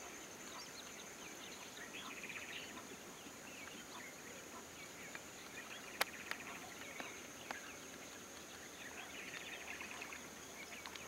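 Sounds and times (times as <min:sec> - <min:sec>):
bird chirps: 0:00.0 - 0:11.0
insect drone: 0:00.0 - 0:11.0.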